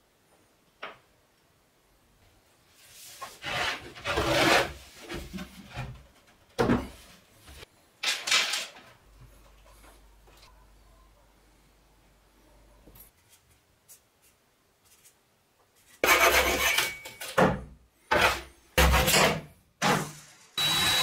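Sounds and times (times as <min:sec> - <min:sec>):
wood scraping and rubbing: 0:02.9 - 0:06.0.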